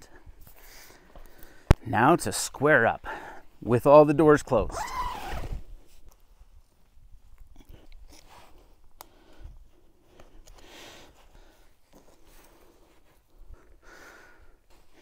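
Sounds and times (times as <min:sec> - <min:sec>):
small clicks and rustles: 0:05.8 - 0:13.4.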